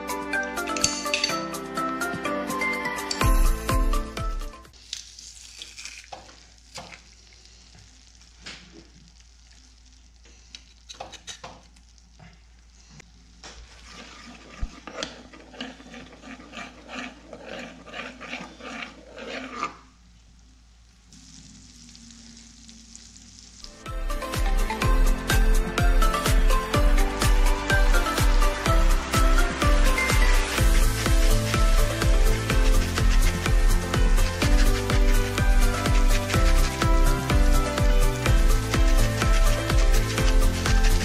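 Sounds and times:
butter sizzling in a frying pan: 4.8s - 13.4s, 20.2s - 23.8s, 27.2s - 41.0s
metal spoon stirring pan: 13.8s - 19.9s, 28.9s - 41.0s.

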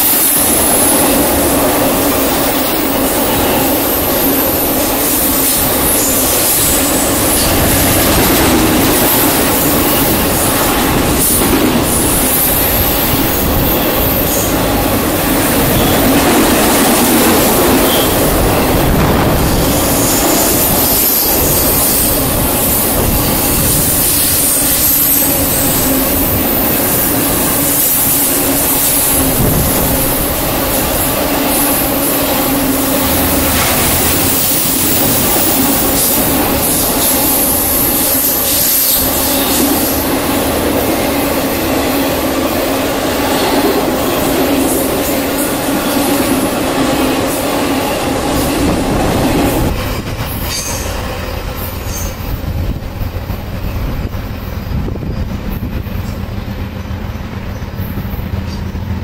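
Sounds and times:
train wheels rumbling and clattering: 0.0s - 59.0s
high-pitched flange squeal: 15.3s - 40.4s, 47.2s - 52.5s.

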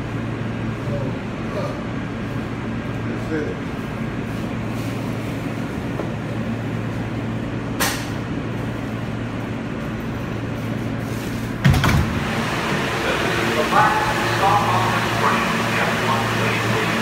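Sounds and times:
subway car hum: 0.0s - 17.0s
train doors opening with thump: 11.6s - 12.2s.

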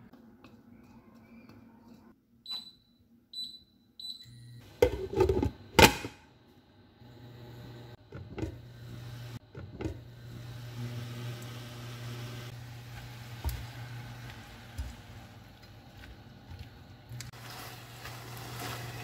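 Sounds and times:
cooktop hum: 4.3s - 19.0s
spatula scraping pan: 17.3s - 19.0s.

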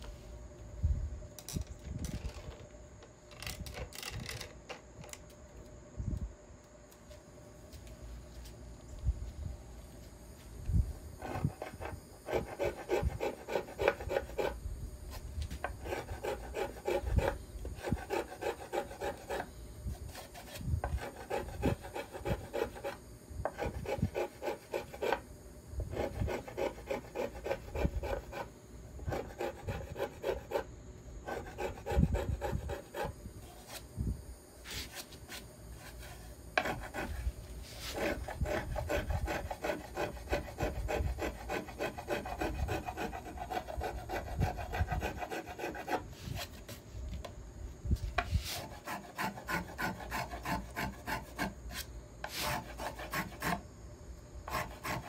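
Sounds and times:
scraper rasping on wood: 11.2s - 14.6s, 15.7s - 19.5s, 20.1s - 25.2s, 25.9s - 30.7s, 31.3s - 33.1s, 35.8s - 46.0s, 48.5s - 53.6s, 54.5s - 55.0s.

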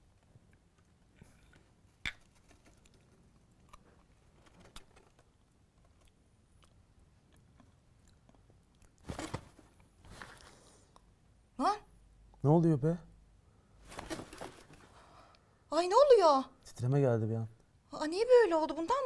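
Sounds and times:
person chewing: 5.8s - 9.0s.

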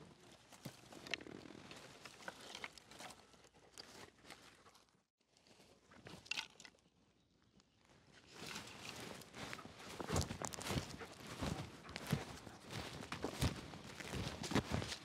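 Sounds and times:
dry twigs crackling: 8.4s - 15.0s
soft rustling: 8.4s - 15.0s.

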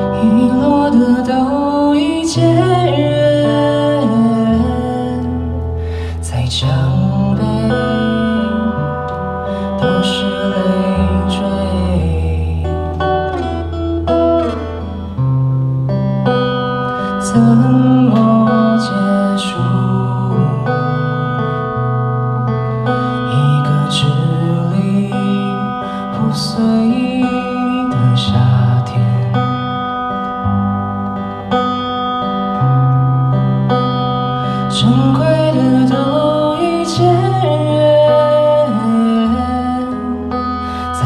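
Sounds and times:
man singing into a microphone: 0.0s - 13.8s, 16.9s - 21.8s, 22.9s - 30.3s, 34.4s - 41.0s
fingerstyle acoustic guitar: 0.0s - 41.0s.

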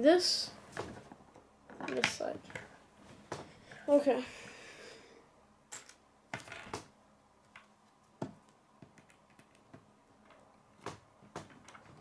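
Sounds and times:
plastic pieces clicking on wood: 8.8s - 12.0s.

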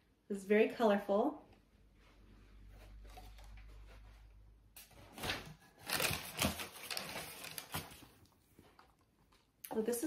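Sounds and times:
fabric and paper rustling: 2.0s - 9.4s.

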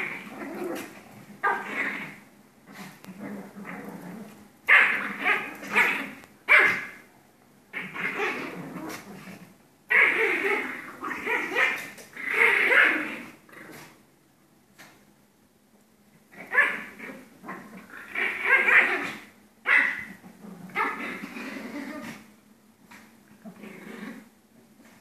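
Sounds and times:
dogs barking and yapping: 4.7s - 7.0s, 9.9s - 13.2s, 16.4s - 21.2s.

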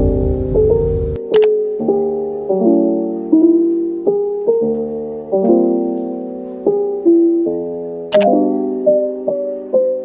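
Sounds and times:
soft piano chords: 0.0s - 10.0s.

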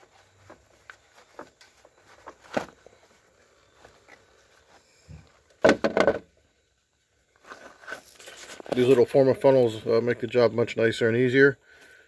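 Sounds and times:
plastic rustling and crinkling: 0.0s - 5.5s, 7.3s - 9.3s
knocks: 5.6s - 6.3s.

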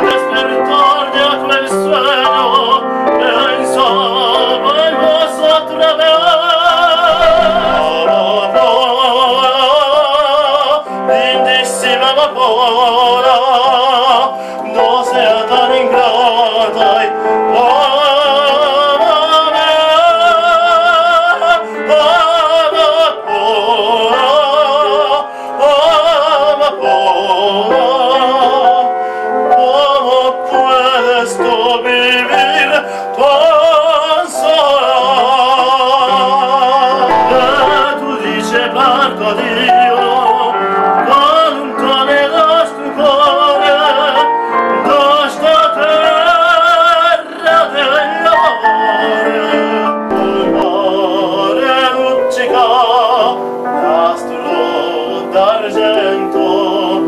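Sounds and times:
man singing operatically: 0.0s - 57.0s
piano accompaniment: 0.0s - 57.0s.

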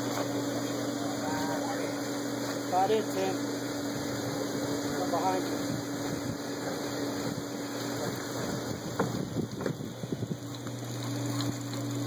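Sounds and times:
steady low hum: 0.0s - 12.0s
wind buffeting microphone: 5.6s - 6.5s, 7.2s - 10.5s.

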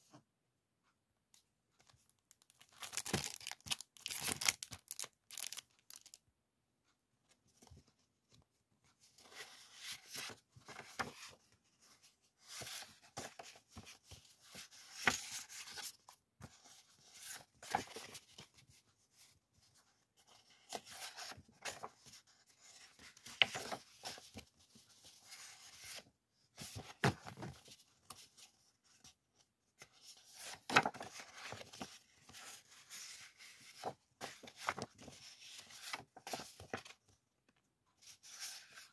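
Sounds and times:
paper rustling: 1.9s - 6.1s, 9.0s - 28.7s, 29.8s - 37.1s
plastic sleeve crinkling: 2.3s - 6.2s.

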